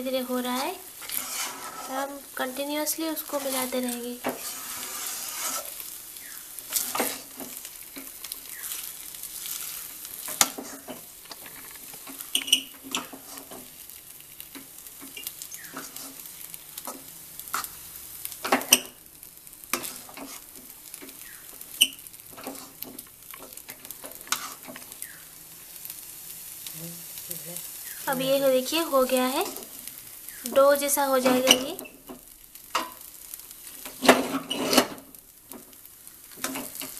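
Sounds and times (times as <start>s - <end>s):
faint sizzle: 0.0s - 36.9s
spatula scraping a pan: 0.3s - 2.4s, 3.2s - 13.9s, 14.5s - 19.0s, 19.6s - 25.0s, 32.8s - 35.1s, 36.3s - 36.9s.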